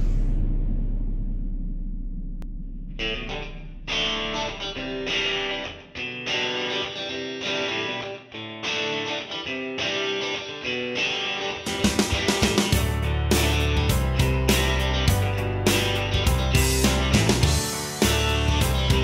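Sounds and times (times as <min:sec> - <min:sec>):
low sound: 0:00.0 - 0:06.2
strummed guitar chords: 0:02.5 - 0:19.0.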